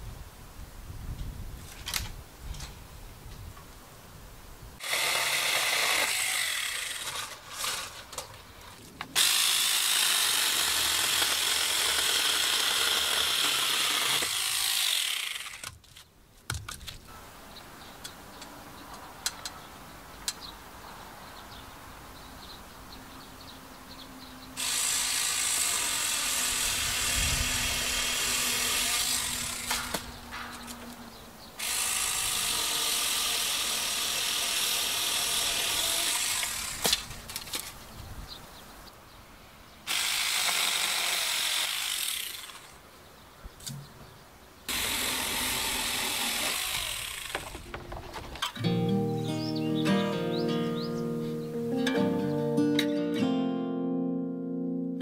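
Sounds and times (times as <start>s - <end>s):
handheld power tool running: 9.2s - 15.6s, 24.6s - 30.1s, 31.6s - 36.9s, 44.7s - 47.6s.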